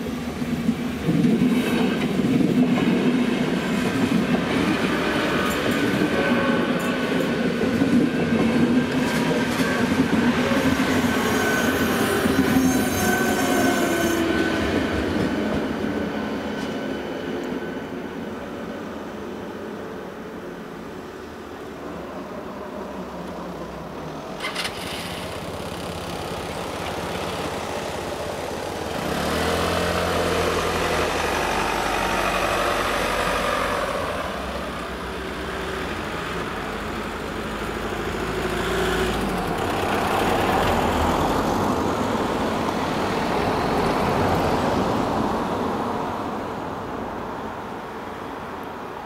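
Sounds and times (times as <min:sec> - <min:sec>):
motor scooter pulling away: 0:24.4 - 0:27.4, 0:28.9 - 0:33.0
cars passing close: 0:24.4 - 0:46.4.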